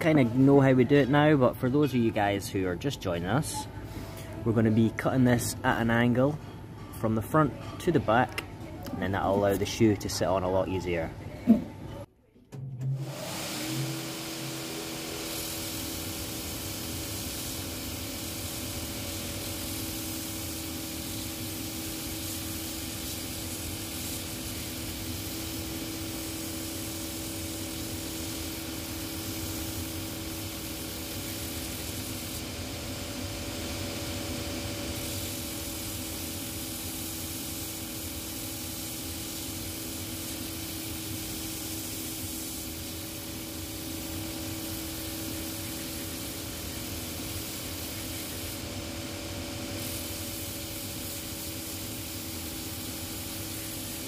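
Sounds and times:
sanding machine motor hum: 13.0s - 36.0s.

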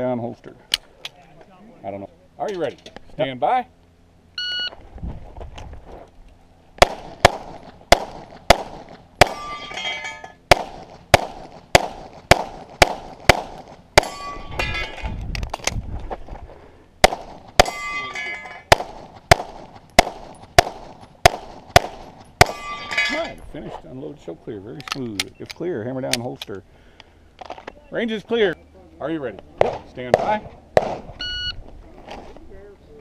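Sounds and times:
pistol shots: 6.8s - 9.6s, 10.5s - 14.4s, 17.0s - 22.9s, 29.6s - 31.2s
metallic clang of steel plates: 9.3s - 10.4s, 14.0s - 15.2s, 17.6s - 18.7s, 22.4s - 23.4s
shot timer beep: 31.2s - 31.6s.

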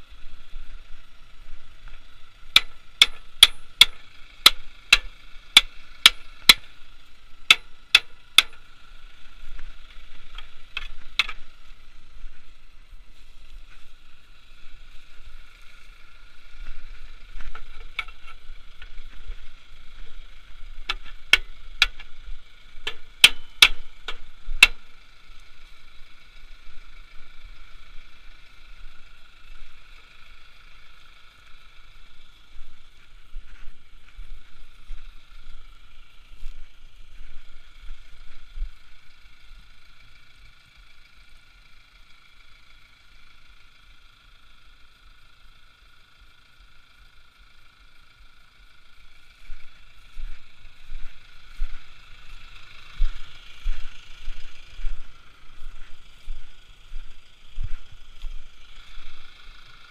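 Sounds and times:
hammer striking steel: 2.5s - 6.6s, 7.5s - 8.6s, 22.9s - 24.8s.

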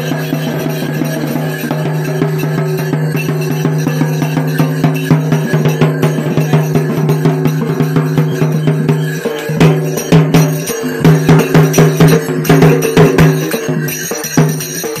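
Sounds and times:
bell-like jingles: 0.0s - 15.0s
fast dense drumming: 0.0s - 15.0s.

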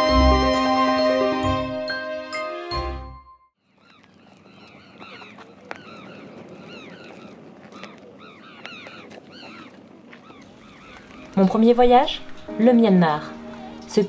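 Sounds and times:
flock of birds calling: 3.7s - 12.4s.

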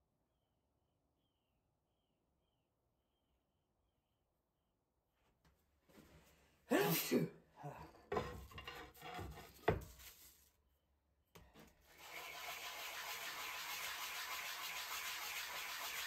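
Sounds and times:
person coughing: 6.7s - 7.9s
wood rubbing on sandpaper: 12.0s - 16.0s.

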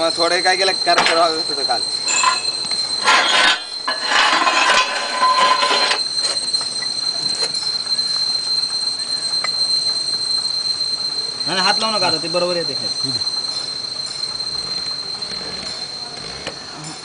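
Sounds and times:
high-pitched whine: 0.0s - 17.0s
metal scraping and knocking: 2.1s - 6.4s.

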